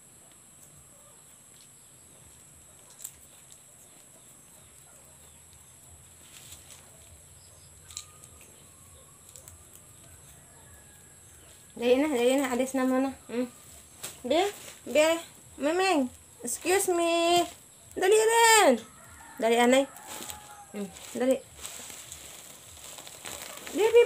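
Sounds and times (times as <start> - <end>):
steady high hiss: 0.0 - 24.0
plastic bag crinkling: 19.2 - 24.0.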